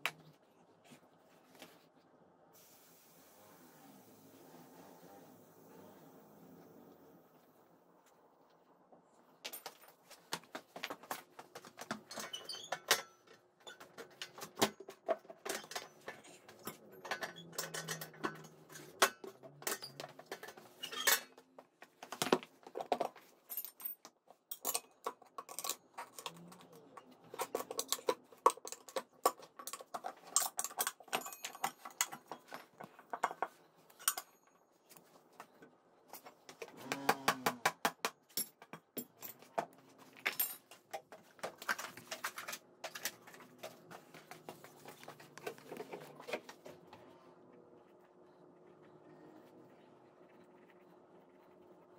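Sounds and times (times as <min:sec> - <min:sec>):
metal tools knocking on wheel rim: 0:15.3 - 0:21.2.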